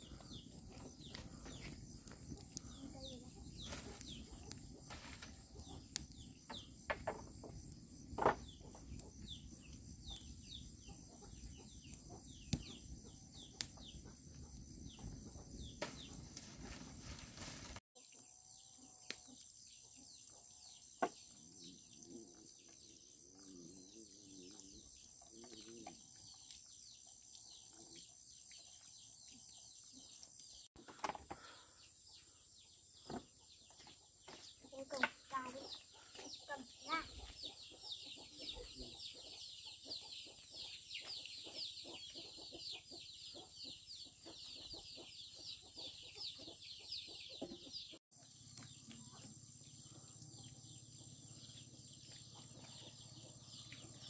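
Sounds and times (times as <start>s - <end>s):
chickens clucking: 34.8s - 48.0s.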